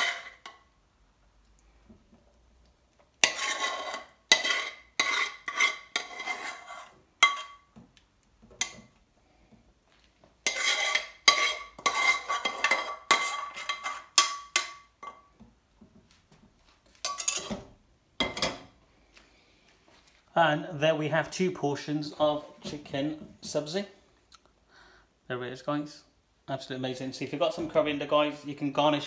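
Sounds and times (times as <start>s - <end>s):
metal spoon scraping pan: 0.0s - 0.7s, 3.2s - 7.7s, 8.5s - 9.0s, 10.4s - 15.3s, 17.0s - 18.6s.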